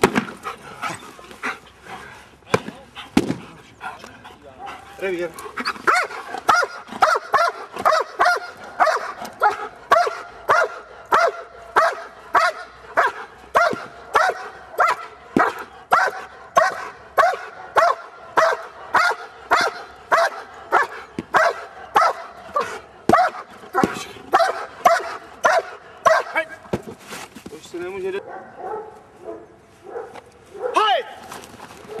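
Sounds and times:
dog barking: 5.9s - 26.4s, 28.2s - 30.8s.

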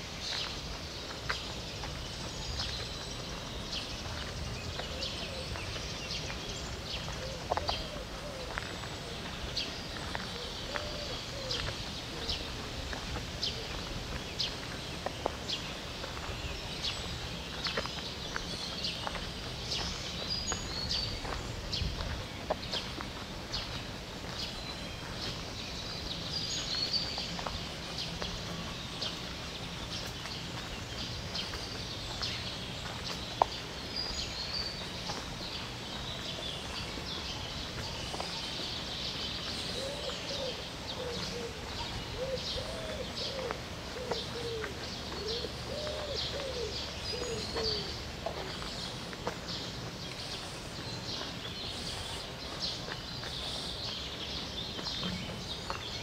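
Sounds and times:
songbirds chorus: 0.0s - 56.0s
dove cooing: 7.2s - 8.6s, 10.3s - 12.3s, 39.8s - 48.6s.

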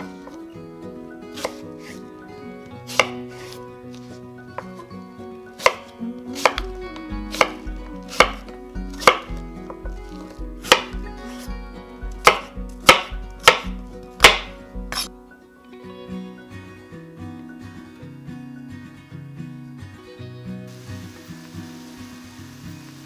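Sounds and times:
knife chopping on cutting board: 1.4s - 2.0s, 2.9s - 3.5s, 5.6s - 6.6s, 7.3s - 9.4s, 10.0s - 11.5s, 12.2s - 15.1s.

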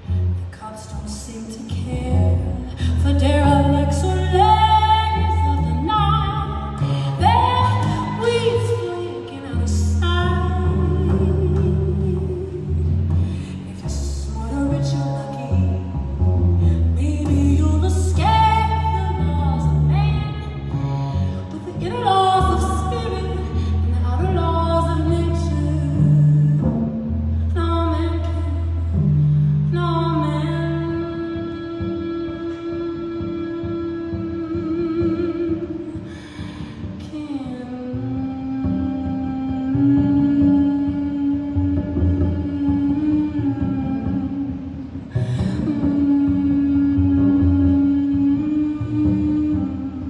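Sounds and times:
double bass notes: 0.0s - 50.0s
woman singing with vibrato: 0.0s - 50.0s
woman singing long notes: 29.7s - 50.0s.

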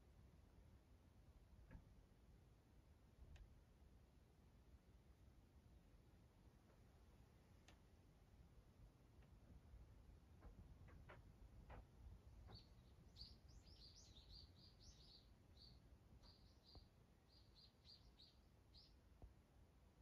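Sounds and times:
soft ticks: 7.6s - 7.8s.

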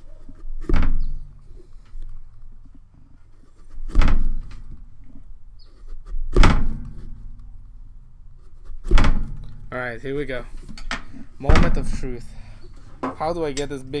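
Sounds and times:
heavy dull thumps through tabletop: 6.3s - 7.2s, 8.8s - 9.5s, 11.1s - 12.3s.

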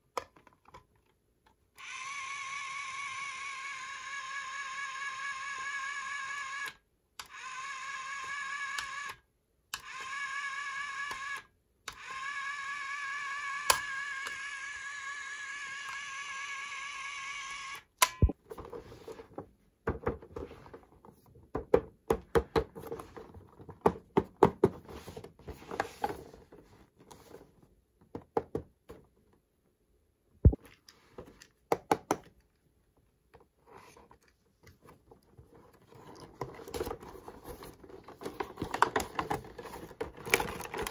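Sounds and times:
toy electronic buzzing tone: 1.8s - 9.2s.

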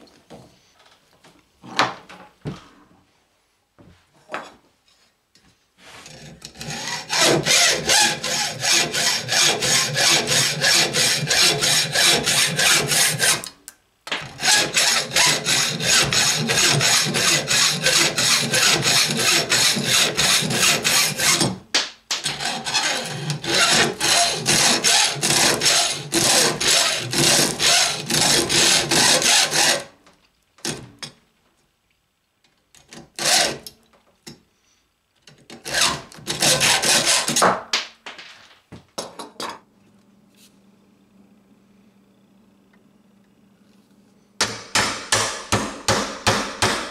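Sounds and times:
hacksaw sawing through metal: 6.0s - 13.5s, 14.4s - 21.6s, 22.2s - 29.9s, 33.2s - 33.7s, 35.6s - 37.5s.

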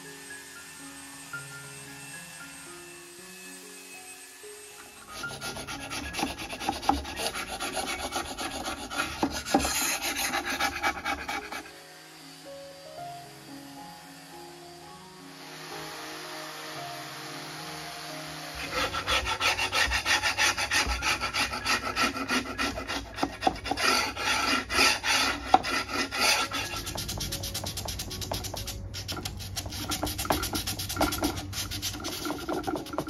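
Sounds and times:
sandpaper rasping on wood: 4.9s - 11.8s, 18.5s - 33.0s.

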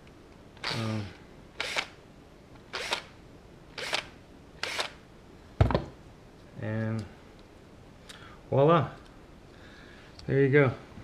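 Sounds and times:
cordless drill cutting plastic: 0.6s - 1.0s, 1.6s - 2.0s, 2.7s - 3.1s, 3.8s - 5.0s.

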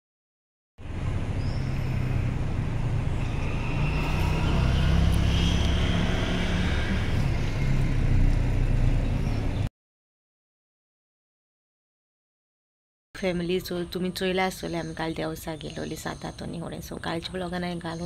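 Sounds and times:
vehicle low rumble with road noise: 0.8s - 9.7s.

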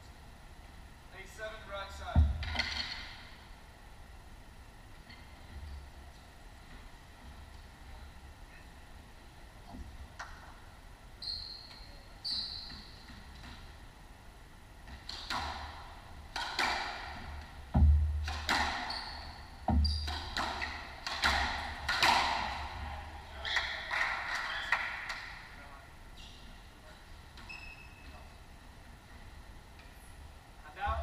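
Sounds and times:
sneakers squeaking on wooden floor: 11.2s - 13.4s, 18.6s - 20.9s, 27.3s - 28.4s
squash ball struck by racket: 14.9s - 19.1s, 19.7s - 22.7s.

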